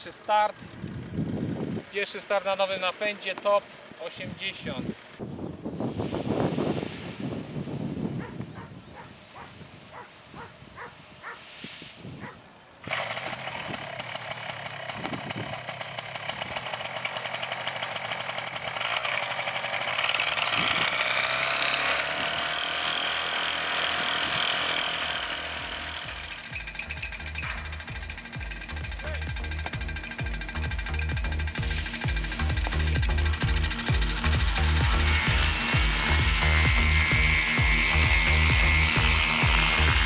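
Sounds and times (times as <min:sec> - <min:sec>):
small two-stroke engine buzzing: 0:00.0 - 0:02.9, 0:12.8 - 0:40.0
wind noise: 0:00.8 - 0:01.9, 0:04.3 - 0:12.5, 0:14.9 - 0:15.6, 0:20.5 - 0:21.0.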